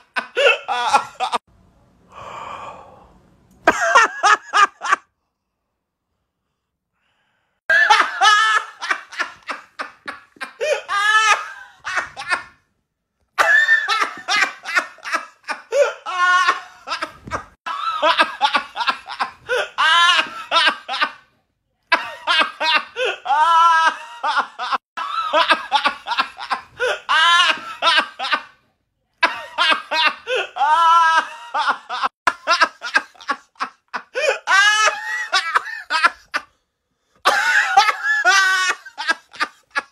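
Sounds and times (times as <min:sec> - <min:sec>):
men laughing hard: 0:00.0 - 0:01.4, 0:03.6 - 0:05.0, 0:07.7 - 0:12.6, 0:13.4 - 0:21.2, 0:21.9 - 0:28.5, 0:29.2 - 0:36.5, 0:37.2 - 0:39.9.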